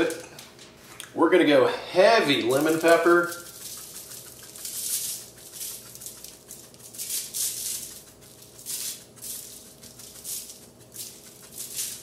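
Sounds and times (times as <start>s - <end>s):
spice shaker rattling: 2.4s - 12.0s.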